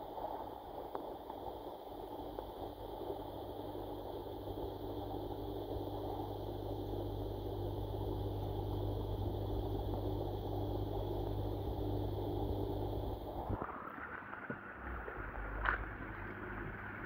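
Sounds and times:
underwater low hum: 0:00.0 - 0:17.0
water rushing underwater: 0:13.2 - 0:16.3.

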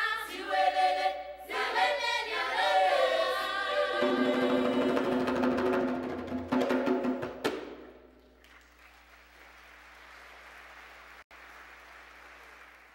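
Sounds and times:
children's choir singing: 0:00.0 - 0:05.5
faint audience applause: 0:08.3 - 0:12.9.

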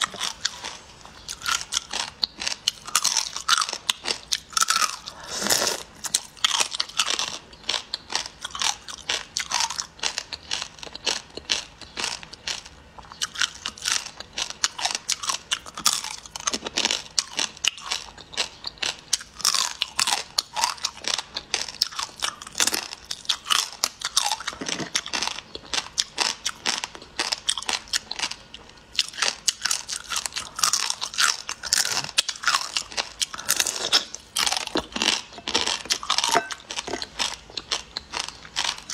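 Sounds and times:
crunchy clicks of chewing: 0:00.0 - 0:38.9
wet sucking and chewing: 0:04.9 - 0:06.2.

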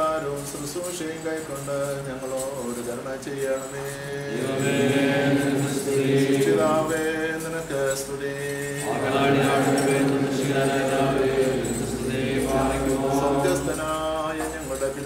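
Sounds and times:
congregation chanting a hymn: 0:04.0 - 0:07.4, 0:08.5 - 0:15.0.

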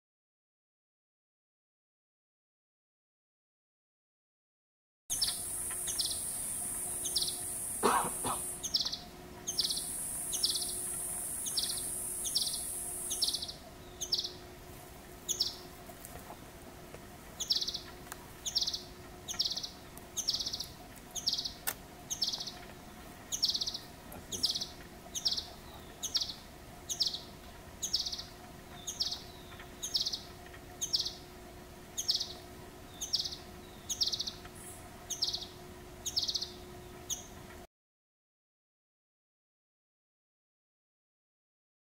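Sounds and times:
bird calling high note: 0:05.1 - 0:14.4
steady high hiss: 0:05.1 - 0:37.4.

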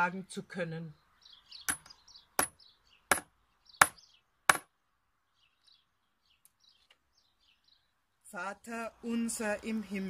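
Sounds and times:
faint birds chirping: 0:00.0 - 0:10.0
hammer striking a nail: 0:01.7 - 0:04.7.

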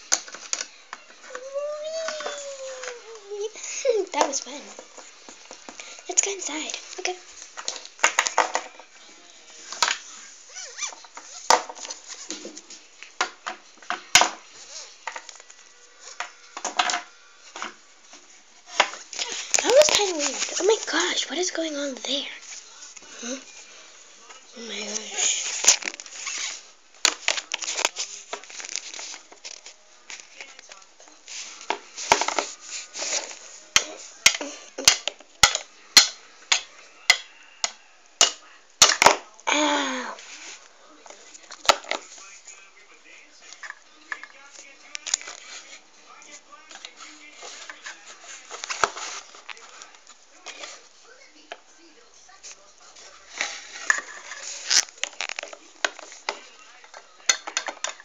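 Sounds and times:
plastic toys rustling and clattering: 0:00.0 - 0:39.4, 0:40.1 - 0:58.0
plastic toys clicking and knocking: 0:07.6 - 0:08.9, 0:33.8 - 0:39.3, 0:53.4 - 0:58.0.

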